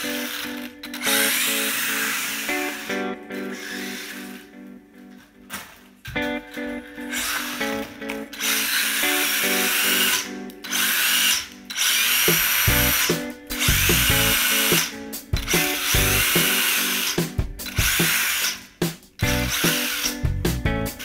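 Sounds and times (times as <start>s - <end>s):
rc car motor whining: 0.0s - 4.4s, 7.1s - 7.8s, 8.4s - 18.7s, 19.3s - 20.2s
background music: 6.2s - 21.0s.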